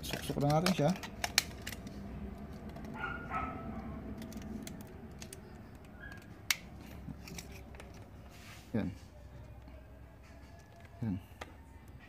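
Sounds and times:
plastic clicks and handling taps: 0.0 - 1.9.

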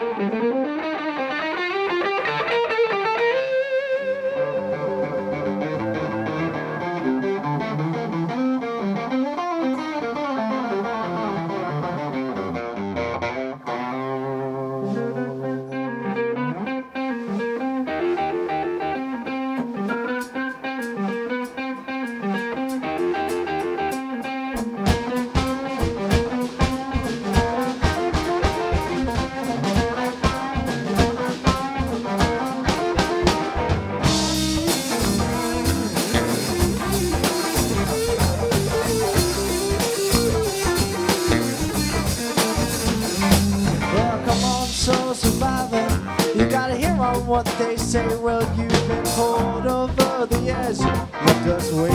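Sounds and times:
bass guitar: 0.0 - 51.9
electric guitar: 0.0 - 51.9
drum kit beat: 4.4 - 9.1, 17.2 - 51.9.

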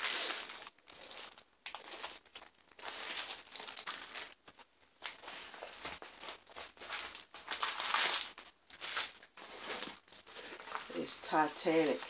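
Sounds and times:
plastic wrapping crinkling: 0.0 - 12.0.

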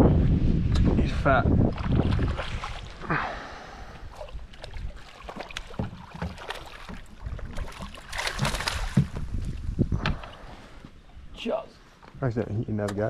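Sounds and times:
low wind rumble: 0.0 - 5.1, 7.0 - 12.8
knocks and bumps in boat: 5.2 - 10.2.

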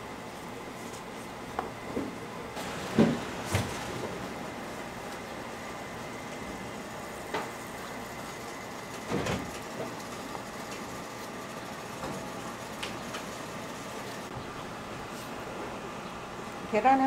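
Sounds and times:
griddle cooking hiss and hum: 0.0 - 17.0.

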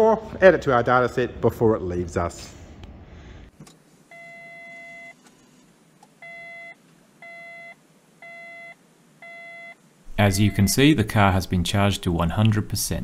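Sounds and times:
car dashboard chime beeping: 10.3 - 10.8.

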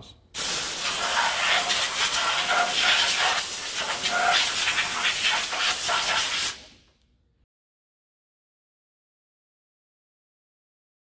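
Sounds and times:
compressed air blow gun hissing: 0.4 - 6.7.

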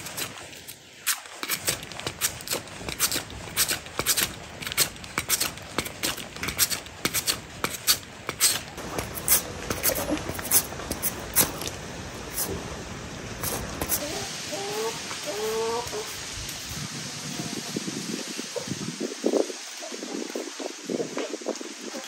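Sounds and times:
root rasping on metal grater: 0.0 - 11.7.

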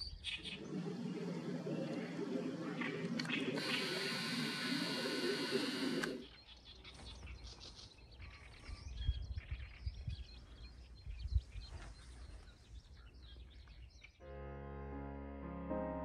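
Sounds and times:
small birds chirping: 0.0 - 14.2
wind rumbling on microphone: 8.2 - 14.0.

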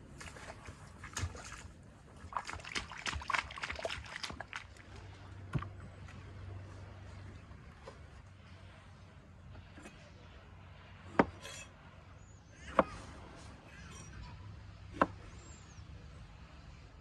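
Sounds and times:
cleaver chopping on wooden board: 11.2 - 11.4, 15.0 - 15.2.

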